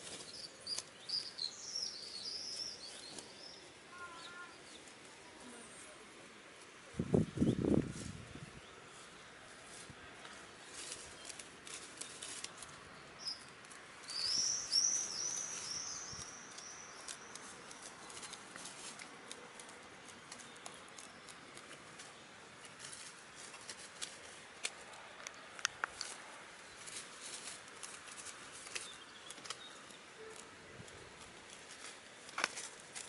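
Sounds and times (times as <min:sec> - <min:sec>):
hens pecking at grass: 0:00.0 - 0:33.0
bird chirping: 0:00.2 - 0:04.9, 0:13.0 - 0:18.5.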